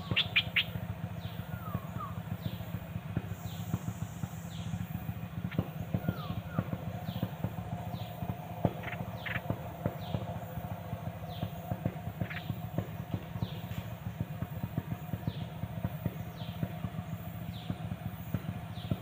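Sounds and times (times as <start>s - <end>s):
songbird chirping: 0.0s - 2.7s, 5.5s - 13.9s
steady low drone: 0.0s - 19.0s.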